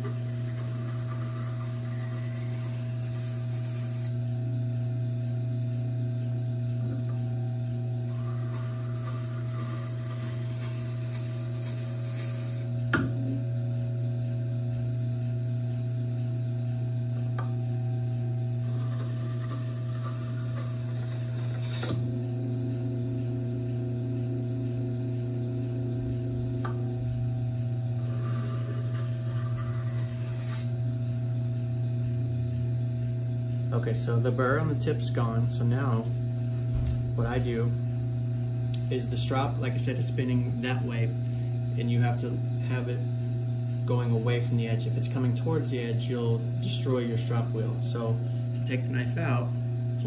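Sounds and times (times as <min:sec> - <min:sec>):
knife scraping on grinding stone: 0:00.0 - 0:04.2, 0:08.1 - 0:12.7, 0:18.6 - 0:22.0, 0:28.0 - 0:30.8
sharpener motor humming: 0:00.0 - 0:04.4, 0:07.0 - 0:13.1, 0:17.2 - 0:32.7.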